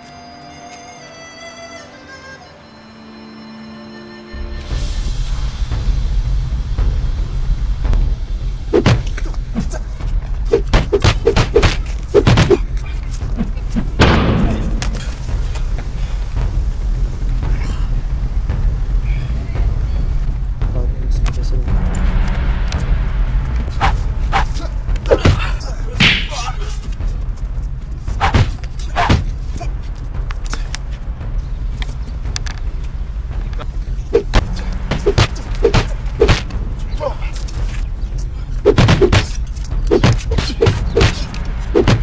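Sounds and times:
low rumble: 4.6s - 42.0s
punch and kick thuds: 8.8s - 9.1s, 10.6s - 12.6s, 28.2s - 29.4s, 34.2s - 36.5s, 38.7s - 42.0s
rushing whoosh: 10.2s - 42.0s.

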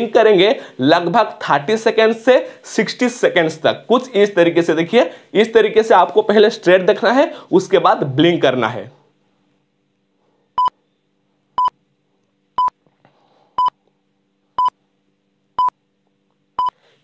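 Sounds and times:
electronic timer beeps: 12.6s - 12.8s, 14.6s - 14.8s.

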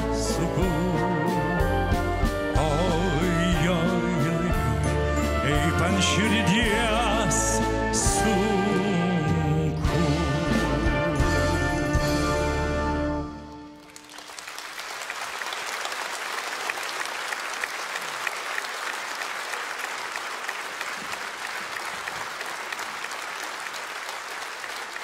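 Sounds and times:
audience applauding: 13.7s - 25.0s.

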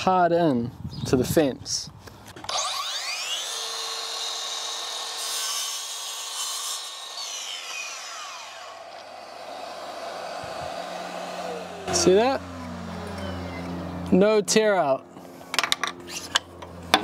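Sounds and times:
mitre saw whining: 2.4s - 14.2s
saw cutting through wood: 2.4s - 14.2s
dust extractor hissing: 8.3s - 14.1s.

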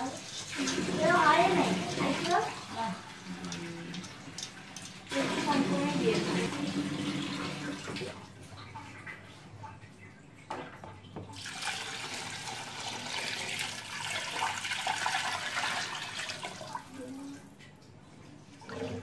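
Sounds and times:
water pouring into a pot: 0.0s - 9.4s, 11.3s - 17.2s.

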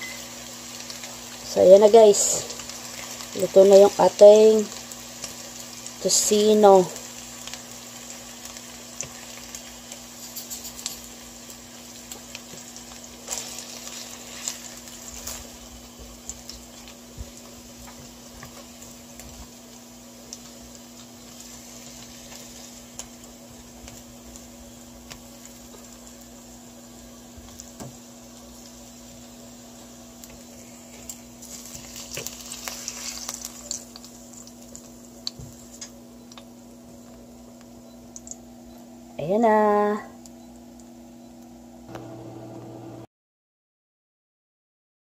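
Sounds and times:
meat sizzling in oil: 0.0s - 39.1s.

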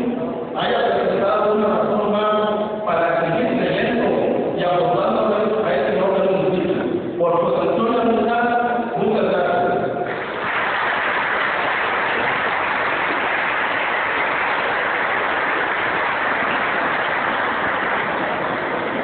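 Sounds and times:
audience applause: 10.1s - 19.0s.

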